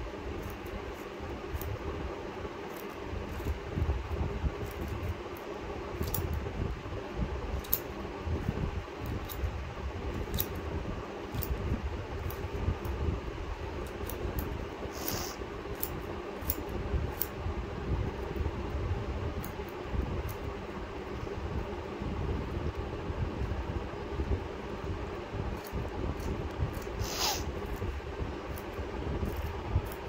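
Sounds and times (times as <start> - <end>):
steady low hum: 0.0 - 30.0
scissors snipping: 6.0 - 6.3, 13.8 - 17.4.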